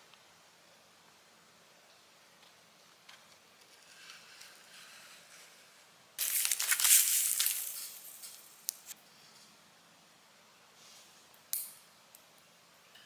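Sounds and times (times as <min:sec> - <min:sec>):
plastic packaging crinkling: 0:06.2 - 0:08.9.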